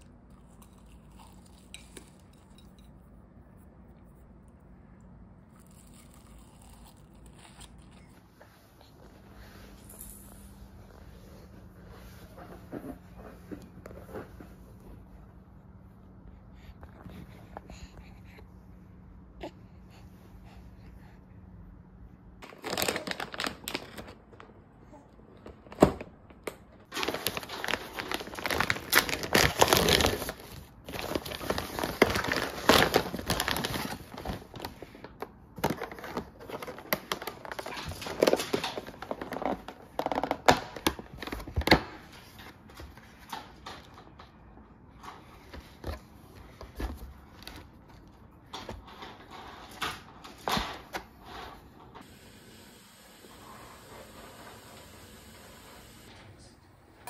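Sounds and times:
plastic packaging crinkling: 22.4s - 24.5s, 26.8s - 41.8s.

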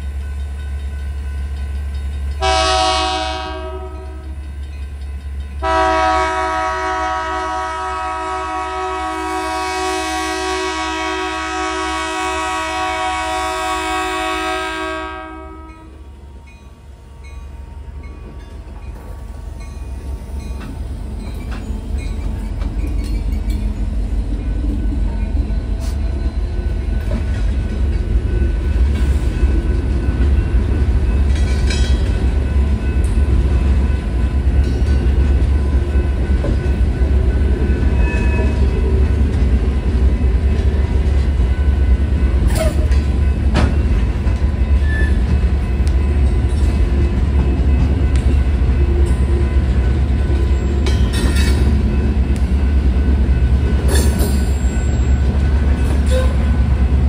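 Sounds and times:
crossing bell ringing: 0.0s - 6.3s, 14.2s - 57.0s
diesel locomotives rumbling: 0.0s - 57.0s
freight cars rumbling and clattering: 17.3s - 57.0s.

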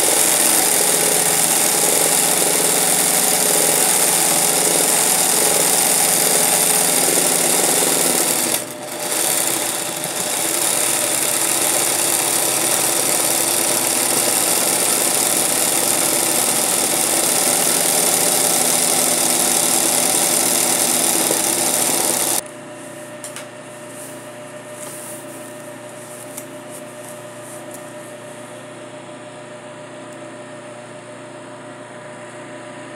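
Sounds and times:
sewing machine running fast: 0.0s - 22.4s.

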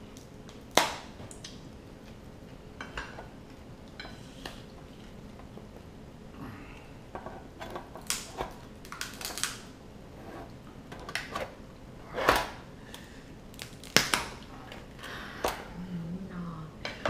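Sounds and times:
crab shell cracking: 7.7s - 9.7s, 12.9s - 14.8s.

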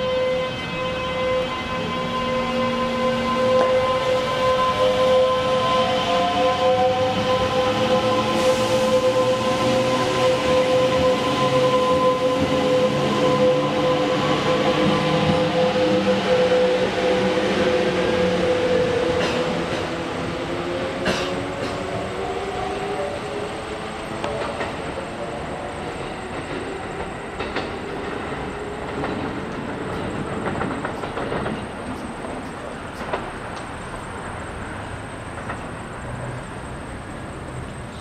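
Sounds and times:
train wheels rumbling: 0.0s - 38.0s
wheels clicking over rail joints: 28.8s - 34.4s, 35.2s - 36.2s.

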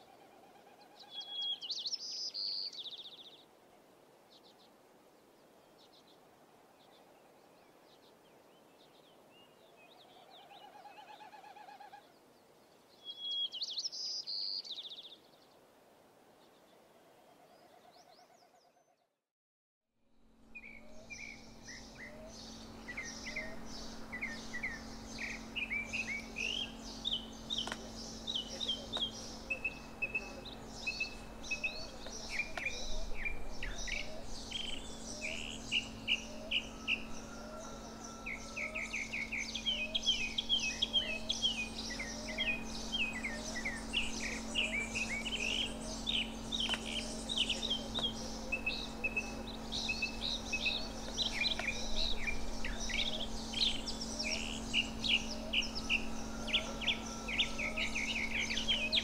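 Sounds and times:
birds chirping and trilling: 0.0s - 3.6s, 4.3s - 15.7s, 20.5s - 59.0s
steady low hum: 20.0s - 59.0s.

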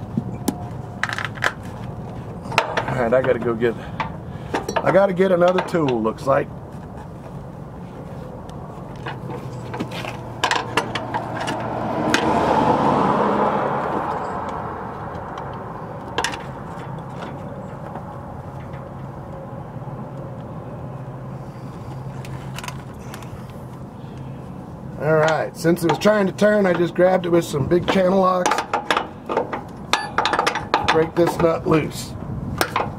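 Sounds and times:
vehicle passing: 6.6s - 27.8s
metal tools clinking: 27.9s - 31.6s.

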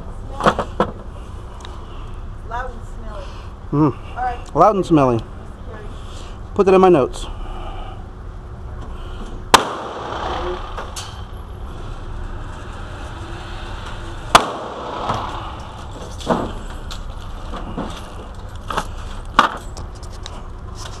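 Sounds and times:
low ventilation hum: 0.0s - 21.0s
gunshots echoing indoors: 9.5s - 10.9s, 14.3s - 15.8s.

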